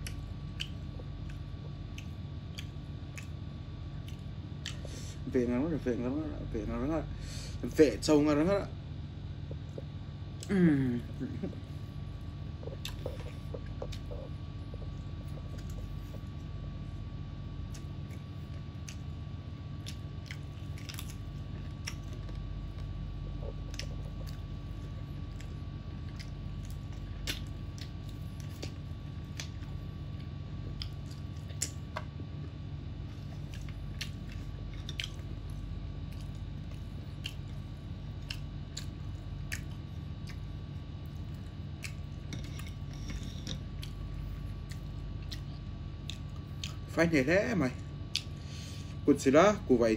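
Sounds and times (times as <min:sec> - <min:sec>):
mouth clicks and smacks: 0:00.0 - 0:03.4, 0:12.4 - 0:16.4, 0:48.1 - 0:48.4
chewing and biting food: 0:00.0 - 0:05.0, 0:09.3 - 0:47.0, 0:47.8 - 0:49.0
steady low hum: 0:00.0 - 0:49.9.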